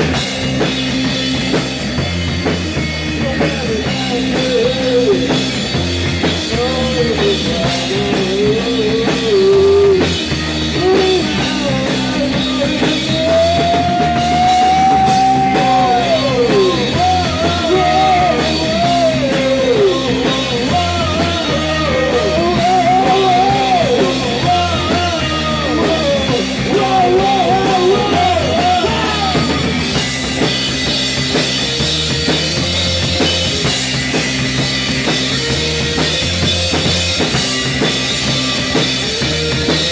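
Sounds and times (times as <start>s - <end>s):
drum kit: 0.0s - 39.9s
electric guitar: 0.0s - 39.9s
man singing: 3.1s - 29.8s.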